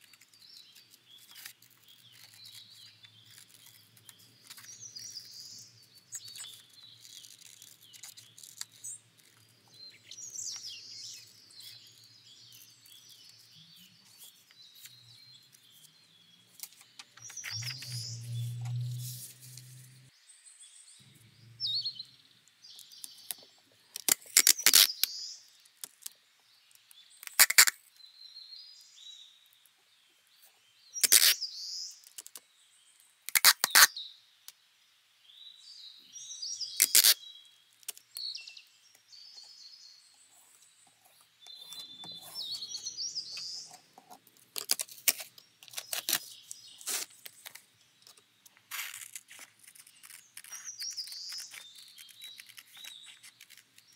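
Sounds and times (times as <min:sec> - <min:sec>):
tape squeaks and crinkles: 0:00.0 - 0:20.1, 0:22.7 - 0:26.2, 0:26.8 - 0:28.0, 0:31.0 - 0:32.4, 0:33.3 - 0:34.0, 0:36.7 - 0:38.3, 0:40.3 - 0:53.9
packing tape ripping: 0:00.3 - 0:04.9, 0:06.1 - 0:09.5, 0:24.0 - 0:25.1, 0:27.2 - 0:27.8, 0:31.0 - 0:31.4, 0:33.3 - 0:33.9, 0:36.8 - 0:37.2, 0:44.5 - 0:53.9.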